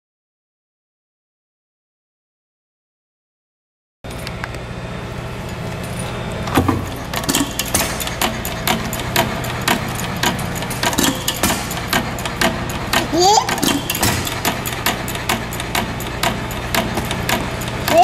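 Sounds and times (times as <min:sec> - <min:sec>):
gas engine running: 0:04.1 - 0:18.0.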